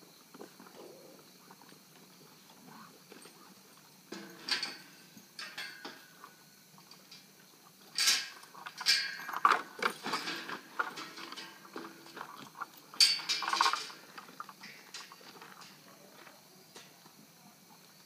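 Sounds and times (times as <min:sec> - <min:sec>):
metal buckles clinking: 0:08.0 - 0:15.8.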